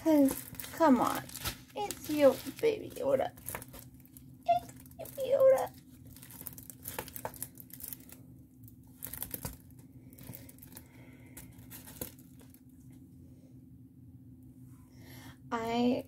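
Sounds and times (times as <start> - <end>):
plastic packaging crinkling: 0.0 - 12.6.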